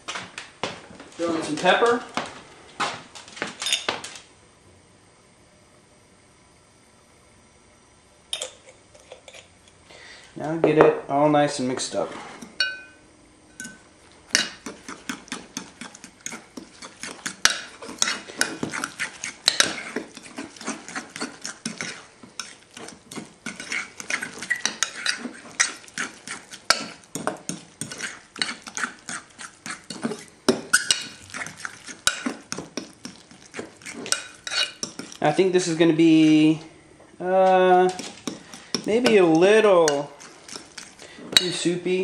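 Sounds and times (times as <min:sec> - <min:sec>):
metal spoon clinking and scraping bowl: 0:08.3 - 0:09.5, 0:12.4 - 0:36.4, 0:37.4 - 0:42.0.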